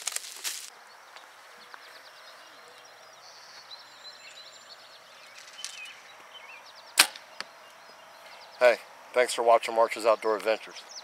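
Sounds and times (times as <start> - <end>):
birds chirping: 0.7 - 11.0
arrow knock: 7.0 - 7.3.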